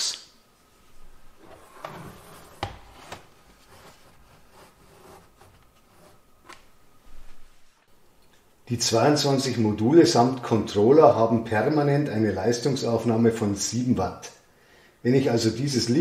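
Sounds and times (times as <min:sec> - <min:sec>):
faint rubbing: 0:00.9 - 0:07.9.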